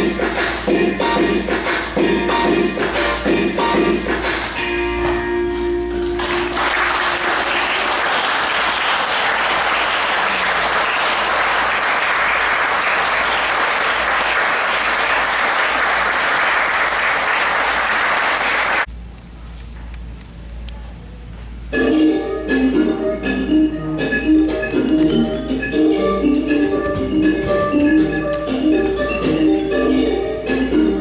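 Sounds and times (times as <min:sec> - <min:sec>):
dance music: 0:00.0 - 0:04.8, 0:21.8 - 0:31.0
audience applauding: 0:06.0 - 0:18.9.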